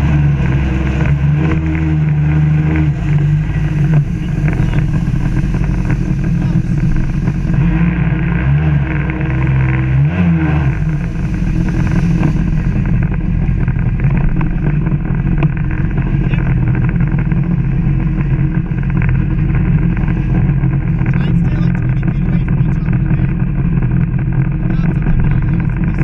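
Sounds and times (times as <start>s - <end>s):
two-stroke watercraft engine: 0.0s - 26.0s
water spray hissing against hull: 10.9s - 13.3s.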